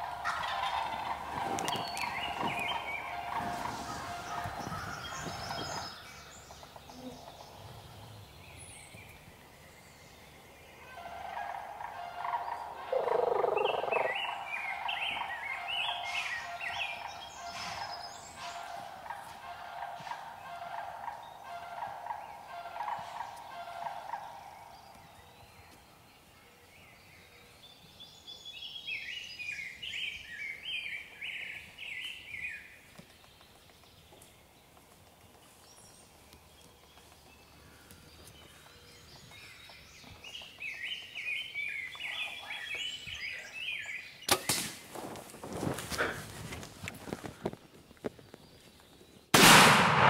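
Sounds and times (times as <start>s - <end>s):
turkeys gobbling: 0.0s - 5.2s, 10.9s - 24.3s
sharp bang: 49.4s - 50.0s.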